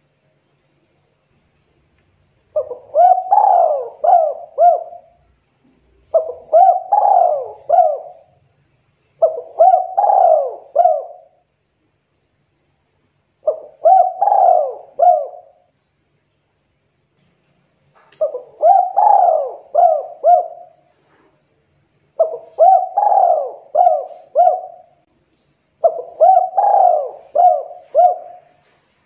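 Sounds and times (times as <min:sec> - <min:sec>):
dove cooing: 0:02.5 - 0:05.3, 0:06.0 - 0:08.4, 0:09.2 - 0:11.4, 0:13.4 - 0:15.7, 0:18.2 - 0:21.3, 0:22.2 - 0:25.0, 0:25.8 - 0:28.9.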